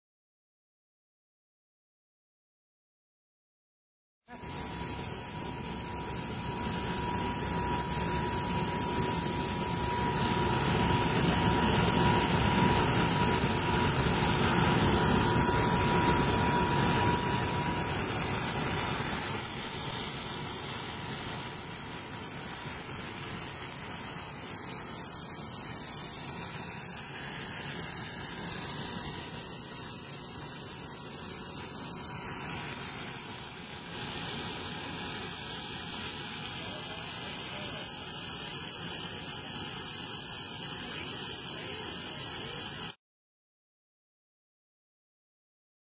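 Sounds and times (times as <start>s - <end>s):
machine motor hum and hiss: 4.3s - 43.0s
high whine: 4.4s - 37.8s.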